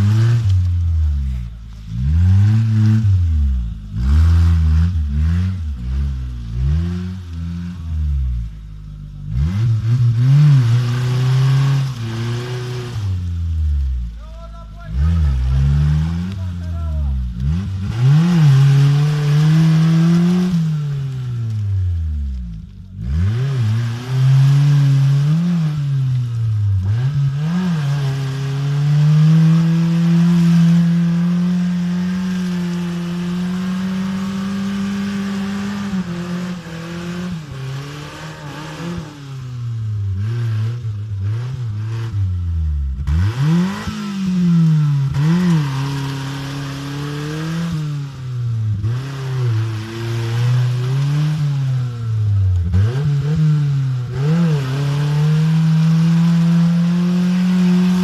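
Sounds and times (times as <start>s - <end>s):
jeep engine revving: 0.0s - 58.0s
wheels churning through mud: 0.0s - 58.0s.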